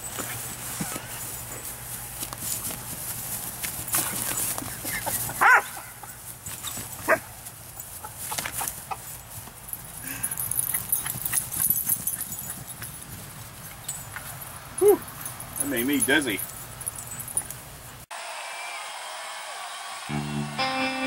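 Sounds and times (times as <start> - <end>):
puppy barking: 5.4 - 6.0, 7.1 - 7.3.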